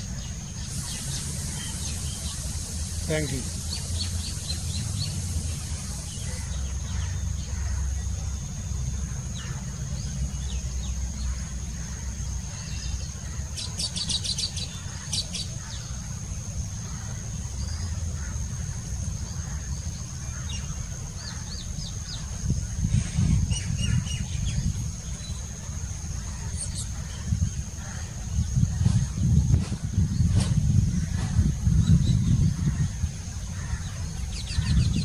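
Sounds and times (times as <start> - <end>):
steady low rumble: 0.0 - 35.0.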